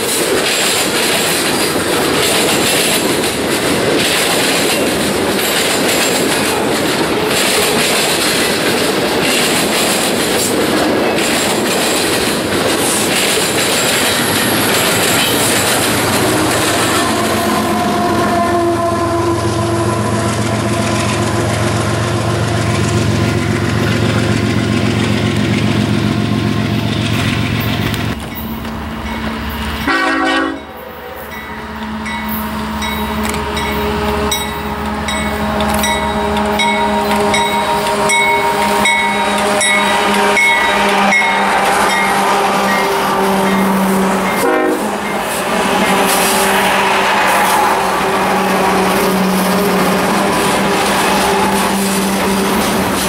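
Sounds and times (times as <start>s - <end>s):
diesel locomotive engine hum: 0.0s - 53.0s
freight train cars rumbling: 0.0s - 53.0s
train horn blast: 14.2s - 22.8s, 29.8s - 52.7s.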